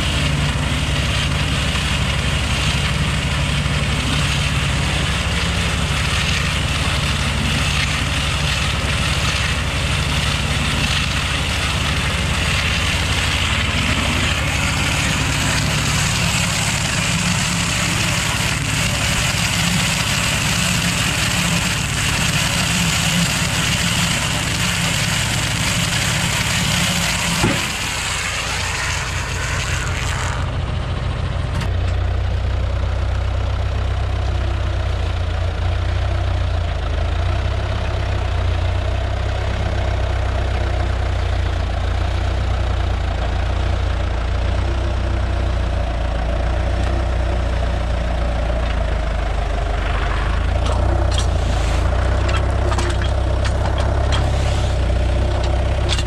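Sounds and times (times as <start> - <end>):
tractor diesel engine running: 0.0 - 56.0
bale wrapper hissing: 50.8 - 55.9.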